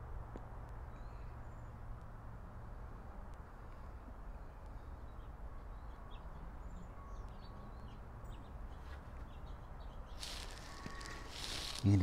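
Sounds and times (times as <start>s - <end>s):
faint bird chirps: 0.8s - 1.8s, 4.3s - 11.8s.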